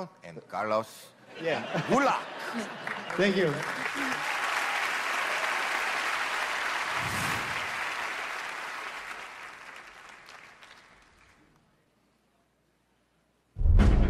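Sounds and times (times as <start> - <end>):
audience applauding: 1.8 - 11.5.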